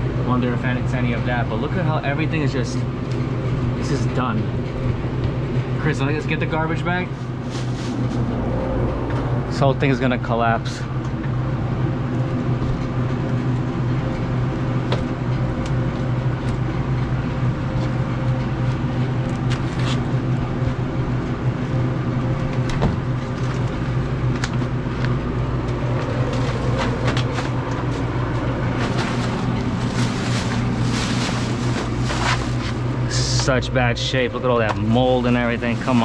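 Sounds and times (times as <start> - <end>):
machinery humming: 0.0 - 36.0
plastic bag rustling: 7.1 - 8.3, 26.0 - 33.0, 35.4 - 36.0.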